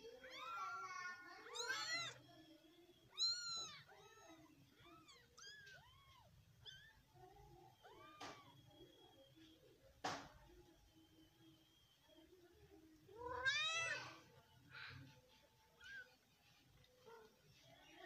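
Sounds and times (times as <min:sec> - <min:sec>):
cats mewing: 0:00.2 - 0:02.2, 0:03.1 - 0:07.1, 0:13.2 - 0:14.2.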